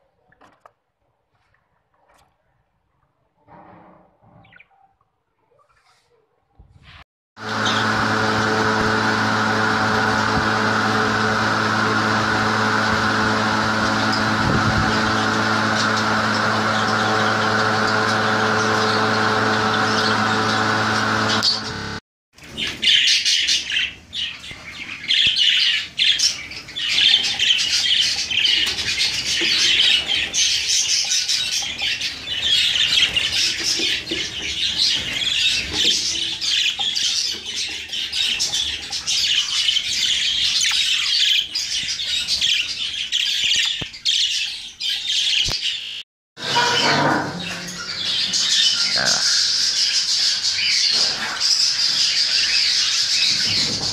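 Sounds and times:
budgerigars chattering and squawking: 0:46.6 - 0:53.9.

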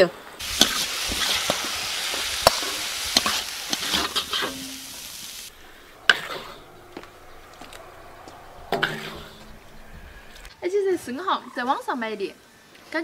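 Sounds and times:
metal spatula scraping a wok: 0:00.4 - 0:04.9
sauce sizzling in a wok: 0:00.4 - 0:05.6.

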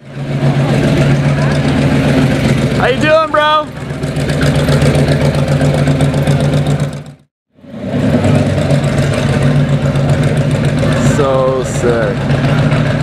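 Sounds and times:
truck engine rumbling: 0:00.0 - 0:13.0.

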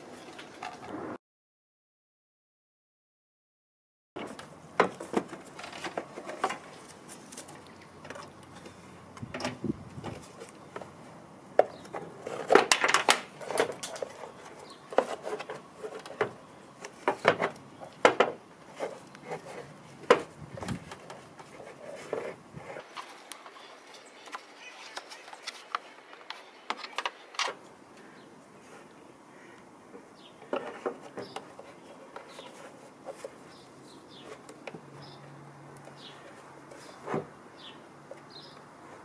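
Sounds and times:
plastic parts knocking and scraping: 0:04.2 - 0:11.0, 0:11.6 - 0:23.1, 0:24.2 - 0:27.6, 0:30.4 - 0:33.6.

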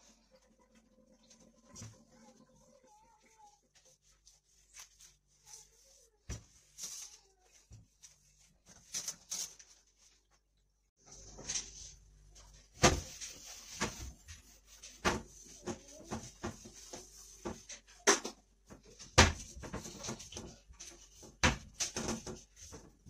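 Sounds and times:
cloth wiping wooden cabinet: 0:01.8 - 0:08.9, 0:12.4 - 0:17.9.

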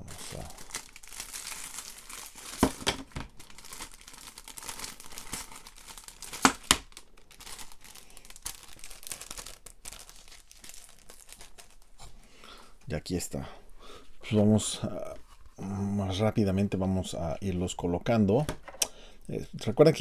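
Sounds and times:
plastic packaging crinkling: 0:00.0 - 0:12.1.

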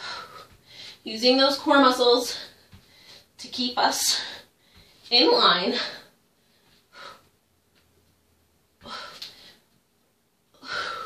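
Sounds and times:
woman breathing effortfully: 0:00.0 - 0:01.1, 0:02.3 - 0:03.4, 0:04.0 - 0:05.1, 0:05.7 - 0:07.5, 0:08.8 - 0:09.8, 0:10.5 - 0:11.0.

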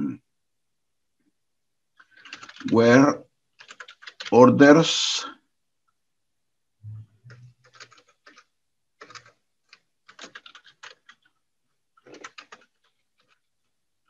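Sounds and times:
computer keyboard typing: 0:02.0 - 0:03.0, 0:03.6 - 0:04.5, 0:07.3 - 0:11.4, 0:12.0 - 0:13.5.

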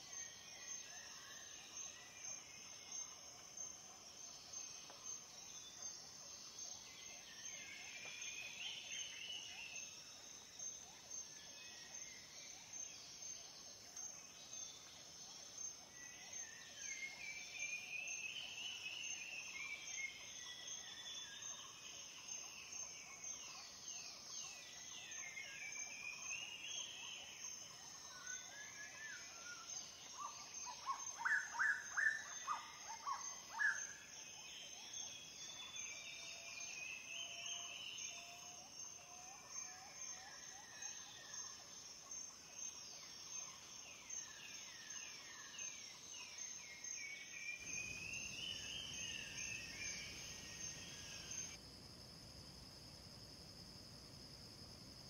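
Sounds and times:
insect trill: 0:00.0 - 0:55.0.

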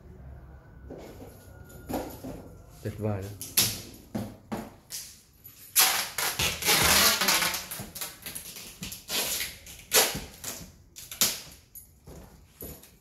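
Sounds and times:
cardboard cartons scraping on tiles: 0:05.8 - 0:10.4.

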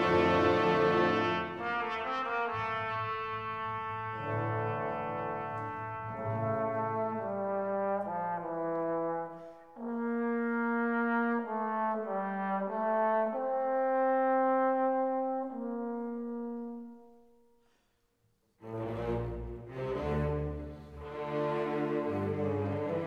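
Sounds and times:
slow brass melody: 0:00.0 - 0:17.8.

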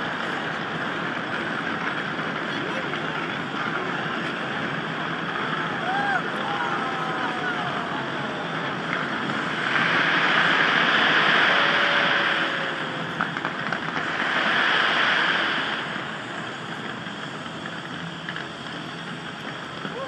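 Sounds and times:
crowd noise: 0:00.0 - 0:20.0
fireworks crackling: 0:00.0 - 0:20.0
fireworks pops: 0:13.0 - 0:20.0.

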